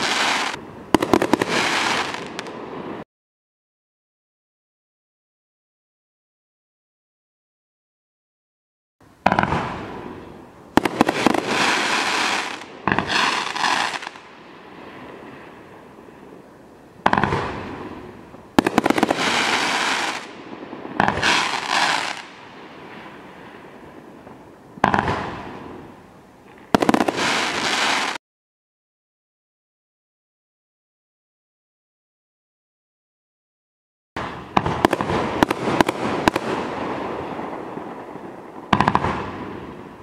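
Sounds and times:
firework bangs with crackling: 0.0s - 3.0s, 9.2s - 15.6s, 17.0s - 25.8s, 26.5s - 28.2s, 34.2s - 40.0s.

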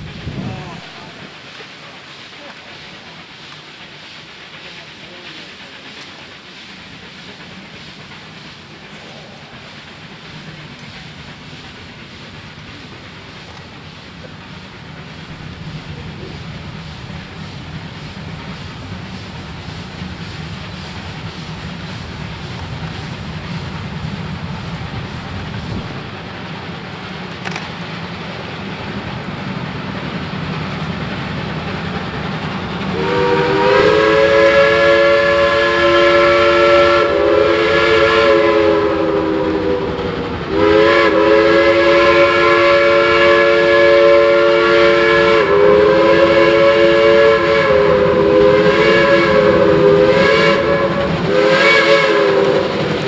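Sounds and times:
steady low rumble: 8.9s - 27.2s
steam locomotive whistle: 32.9s - 53.0s.

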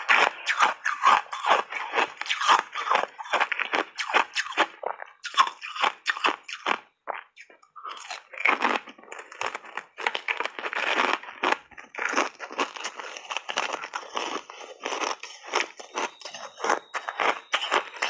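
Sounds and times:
ice chips being chewed: 0.0s - 18.0s.

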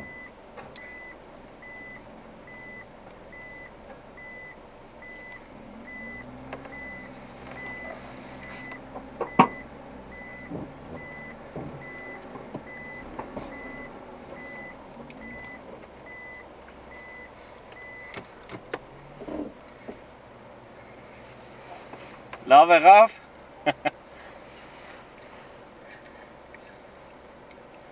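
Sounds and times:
reverse warning beeper: 0.0s - 18.2s.

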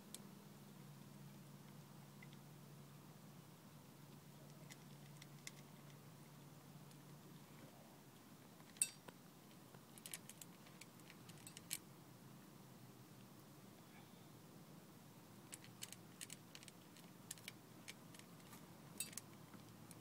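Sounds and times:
cat crunching dry kibble: 4.5s - 6.0s, 15.5s - 19.8s
kibble clinking on metal bowl: 19.0s - 19.2s.

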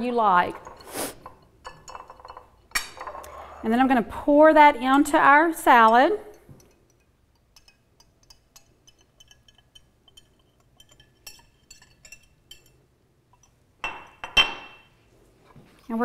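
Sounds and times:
wire whisk clinking in glass bowl: 0.4s - 2.7s, 5.6s - 14.8s.

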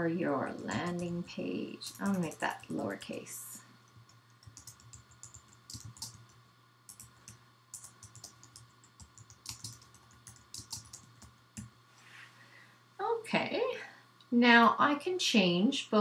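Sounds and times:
computer keyboard key clicks: 3.9s - 7.1s, 7.8s - 11.3s.

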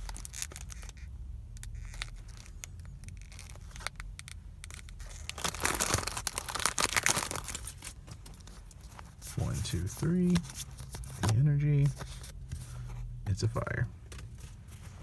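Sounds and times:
foil wrapper crinkling: 0.0s - 9.2s.

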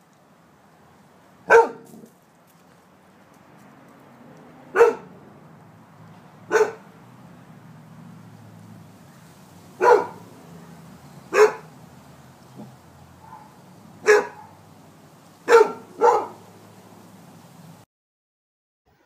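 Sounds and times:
dog barking: 1.5s - 2.1s, 4.7s - 5.2s, 6.5s - 6.9s, 9.8s - 11.8s, 12.6s - 14.6s, 15.4s - 16.5s.

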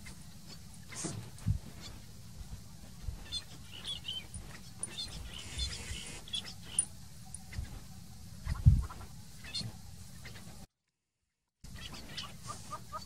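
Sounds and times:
birds chirping: 3.0s - 10.5s.

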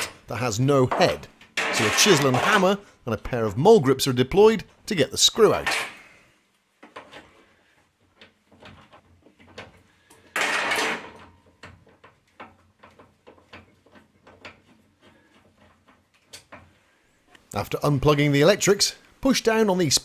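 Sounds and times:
rustling scrape: 1.6s - 2.8s.

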